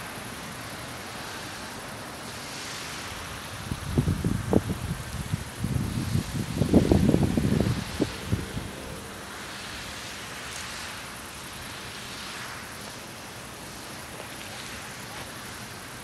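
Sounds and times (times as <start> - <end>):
outdoor air hiss: 0.0 - 16.0
wind buffeting microphone: 3.6 - 9.2.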